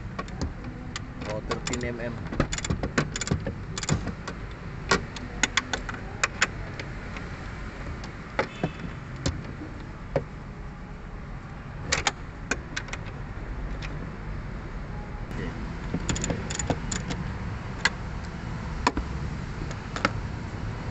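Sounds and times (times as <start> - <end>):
wrench clicking on bolt: 0.2 - 6.8, 16.0 - 17.2.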